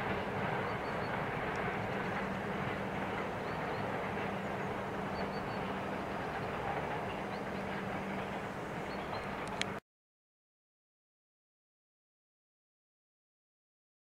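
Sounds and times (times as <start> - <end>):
freight train rolling over rails: 0.0 - 9.8.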